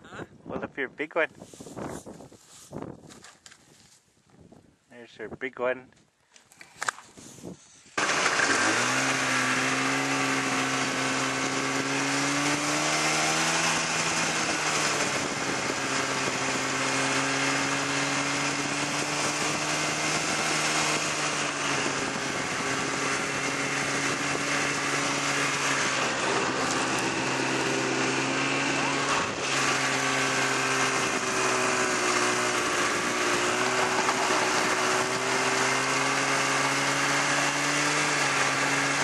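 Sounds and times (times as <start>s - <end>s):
snowmobile engine running: 8.0s - 39.0s.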